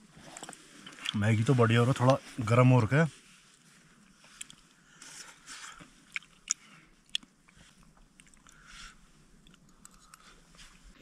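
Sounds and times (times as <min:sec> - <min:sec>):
person chewing noodles: 0:04.3 - 0:11.0.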